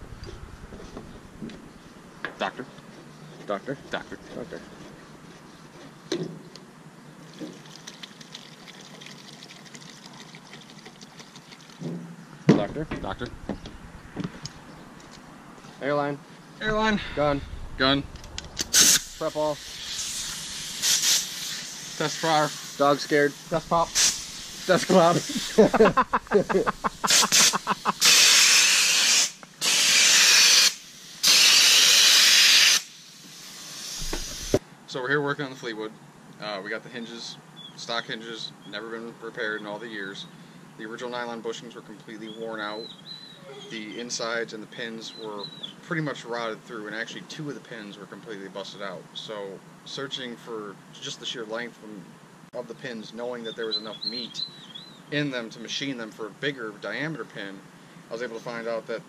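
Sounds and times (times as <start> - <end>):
liquid trickling from a can: 7.2 - 11.9
paint spray gun hissing: 18.7 - 34.6.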